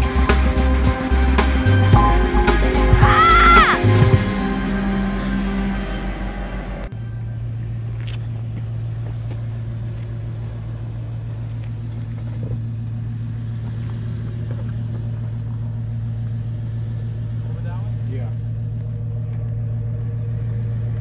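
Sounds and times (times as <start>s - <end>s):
music: 0.0s - 7.7s
engine low drone: 0.0s - 21.0s.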